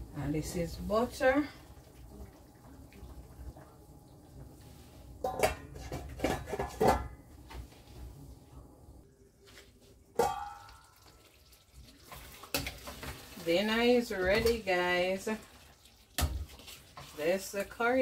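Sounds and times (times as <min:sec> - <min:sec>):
pan and lid clinking: 0:10.2 - 0:11.0.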